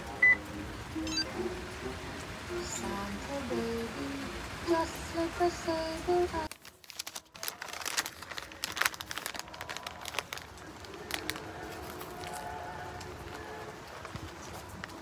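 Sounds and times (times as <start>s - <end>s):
paper wrapper crinkling: 6.4s - 15.0s.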